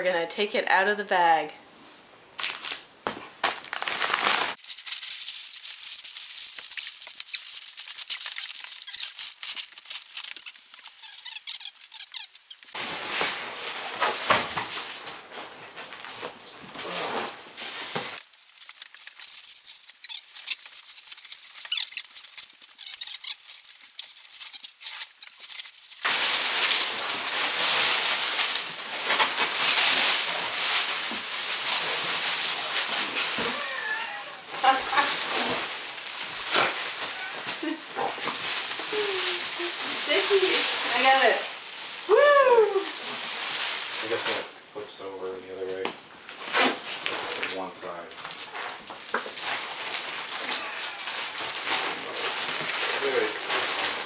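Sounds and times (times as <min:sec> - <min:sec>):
plastic wrapping crinkling: 0:03.4 - 0:15.0, 0:18.1 - 0:33.4, 0:34.9 - 0:44.4, 0:48.1 - 0:54.0.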